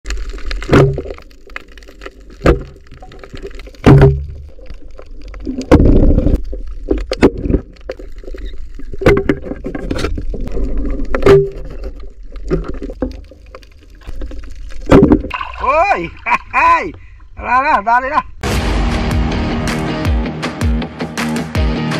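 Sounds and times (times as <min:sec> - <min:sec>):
churning water rush: 0:15.3 - 0:16.7.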